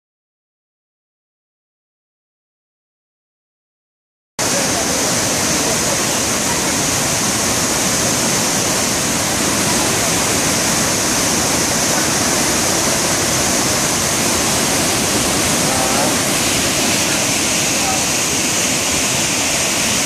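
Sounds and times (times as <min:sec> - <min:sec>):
waterfall rushing: 0:04.4 - 0:20.0.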